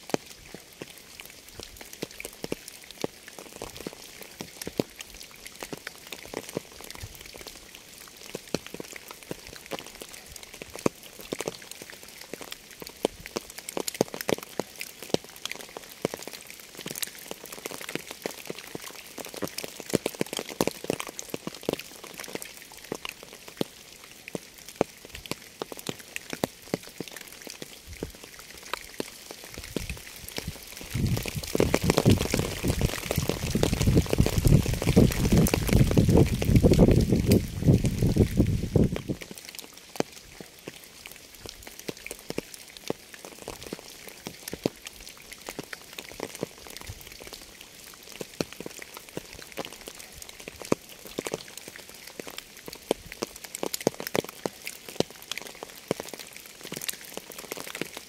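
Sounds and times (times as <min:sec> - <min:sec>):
raindrops striking surface: 0:00.0 - 0:58.0
rain hissing: 0:14.5 - 0:58.0.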